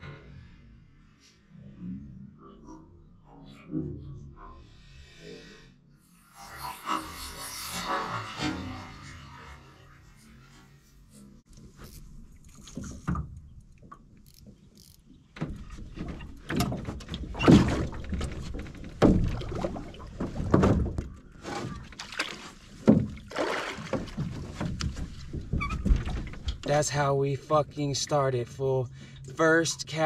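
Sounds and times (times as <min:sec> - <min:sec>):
footfalls in a boat: 0:15.3 - 0:26.7
fish splashing at the surface: 0:23.2 - 0:24.2.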